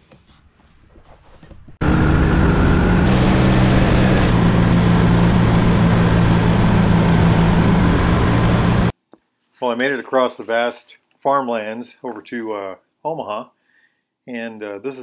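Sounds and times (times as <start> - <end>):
motorcycle engine drone: 1.8 - 8.9.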